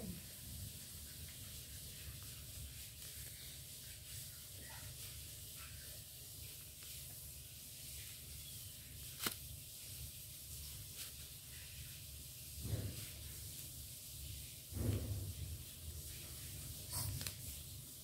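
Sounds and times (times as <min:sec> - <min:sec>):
steady hiss: 0:00.0 - 0:18.0
paper rustling and crinkling: 0:07.9 - 0:12.0, 0:16.0 - 0:17.8.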